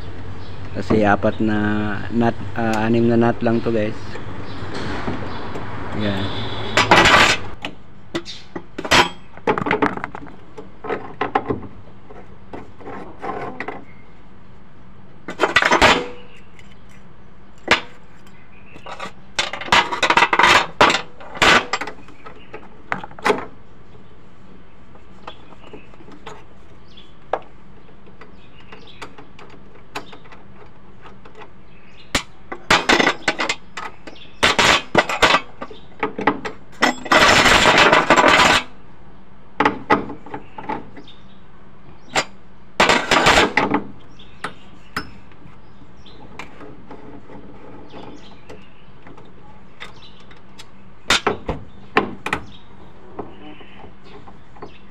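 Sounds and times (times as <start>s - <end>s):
hand tools clinking and rattling: 6.7s - 12.2s, 15.3s - 17.0s, 17.6s - 23.4s, 32.2s - 38.7s, 42.1s - 43.8s.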